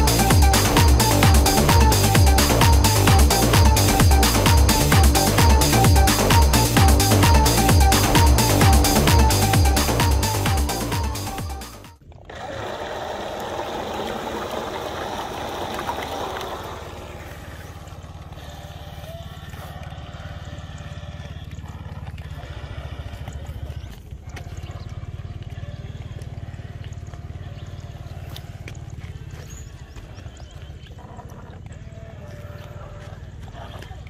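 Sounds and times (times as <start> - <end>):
background music: 0.0 - 12.0
small boat motor buzzing: 0.0 - 34.0.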